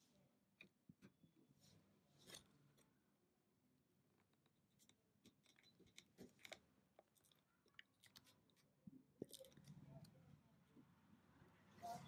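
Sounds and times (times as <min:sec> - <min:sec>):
faint plastic clicks and rustling: 0:04.1 - 0:10.9.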